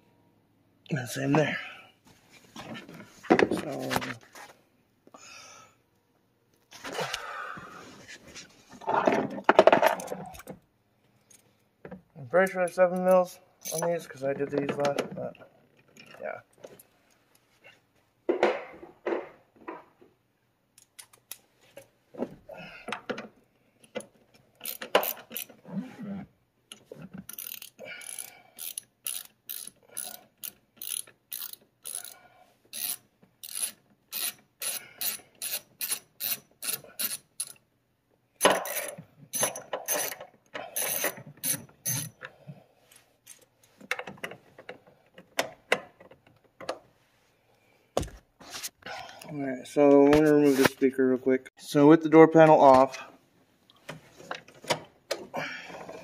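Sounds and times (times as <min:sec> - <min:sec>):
socket ratchet clicking: 0:27.3 - 0:37.6.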